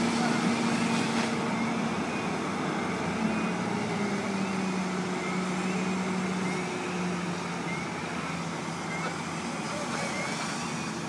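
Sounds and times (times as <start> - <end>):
fire hoses spraying water: 0.0 - 1.7, 7.4 - 11.0
fire engine running: 0.0 - 11.0.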